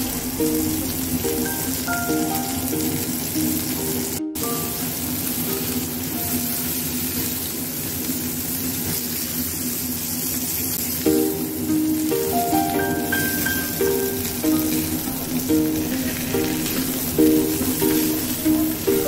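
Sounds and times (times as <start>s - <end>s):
background music: 0.0s - 6.8s, 11.1s - 19.0s
meat sizzling in a frying pan: 0.0s - 19.0s.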